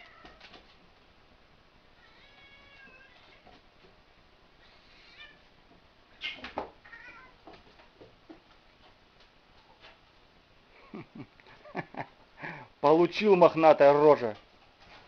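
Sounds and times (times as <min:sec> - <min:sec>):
cat meowing: 0:02.0 - 0:03.4, 0:04.6 - 0:05.5, 0:06.8 - 0:07.4.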